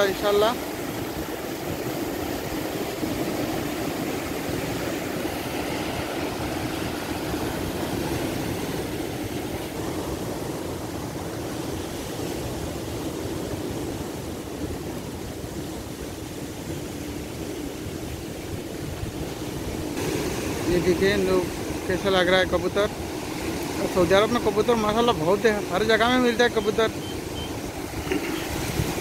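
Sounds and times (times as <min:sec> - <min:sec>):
wind buffeting microphone: 0:27.0 - 0:29.0.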